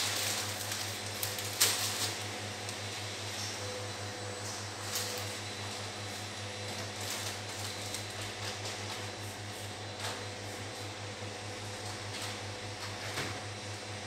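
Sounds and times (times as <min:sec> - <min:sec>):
packaging rustling: 0:00.0 - 0:02.3
low electrical hum: 0:00.0 - 0:14.0.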